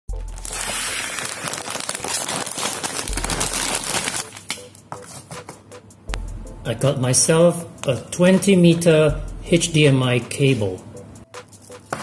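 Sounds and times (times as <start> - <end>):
plastic packaging crinkling: 0.1 - 4.6
background music with deep bass: 4.6 - 12.0.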